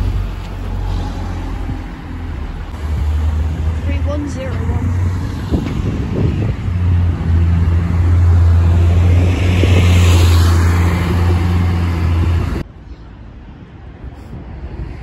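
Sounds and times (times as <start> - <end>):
bus diesel engine passing: 0.0 - 12.7.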